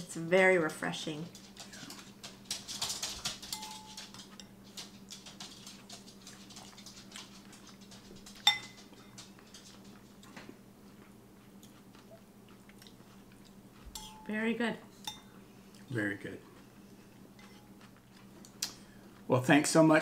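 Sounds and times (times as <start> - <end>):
spoons clinking on ceramic bowls: 3.4 - 4.6, 8.4 - 9.2, 13.9 - 14.3, 15.0 - 15.4.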